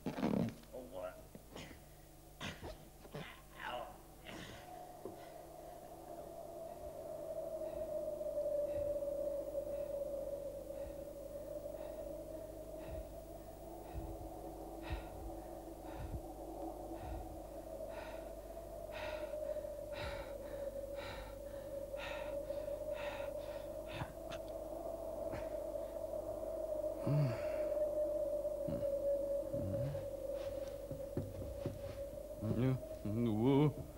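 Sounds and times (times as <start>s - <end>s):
eerie wavering drone: 1.6s - 33.9s
muffled grunt: 2.4s - 4.6s.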